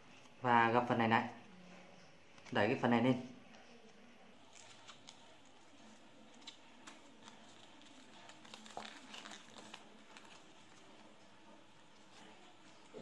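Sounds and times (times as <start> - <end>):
paper rustling being folded: 3.8 - 13.0.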